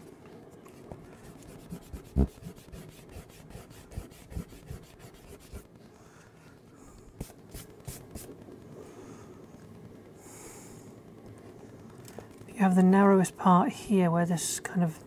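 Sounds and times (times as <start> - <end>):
eraser rubbing on paper: 1.1 - 5.7.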